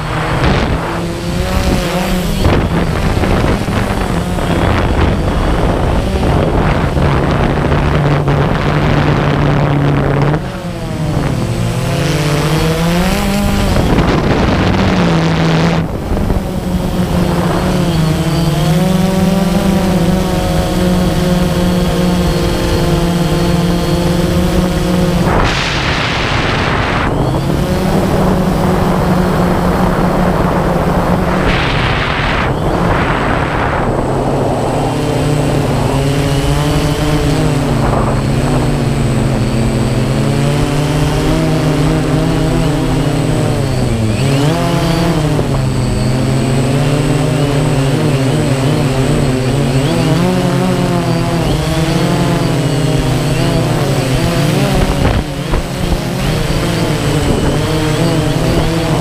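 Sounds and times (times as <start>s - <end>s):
bursts of rushing noise: 0.0s - 19.2s, 22.6s - 39.9s
drone propellers whirring: 0.0s - 59.0s.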